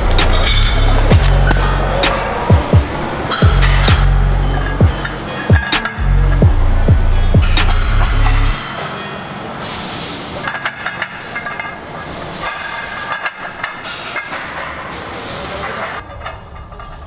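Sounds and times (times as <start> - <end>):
music with heavy bass: 0.0 - 8.6
gym noise hum: 0.0 - 15.3
weight plates clanking: 0.0 - 17.0.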